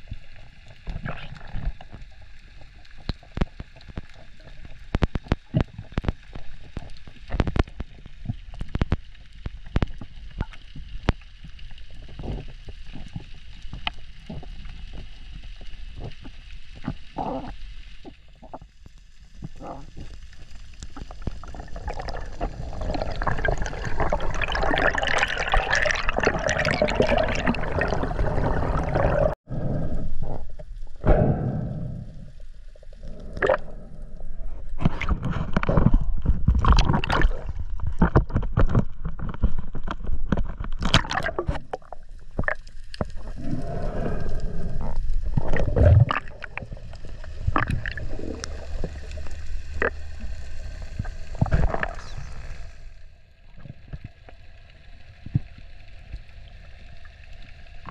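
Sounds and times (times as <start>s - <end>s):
bubbling churning water: 0.0s - 30.6s, 32.7s - 57.9s
underwater clicks and knocks: 34.8s - 43.2s.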